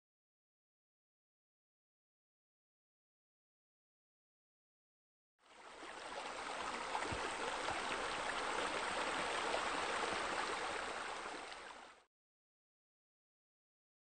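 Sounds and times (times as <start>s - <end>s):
splashing and trickling water: 5.4s - 12.0s.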